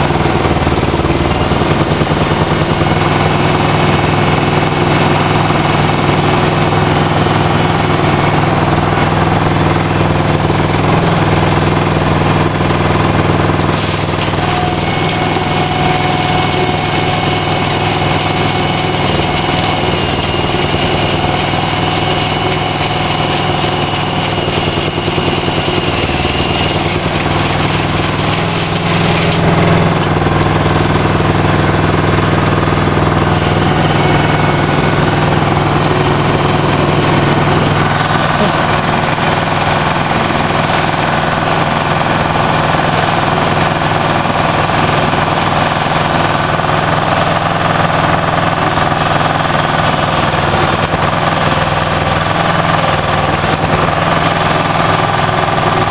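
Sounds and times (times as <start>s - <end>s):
harvester engine running: 0.0s - 55.9s.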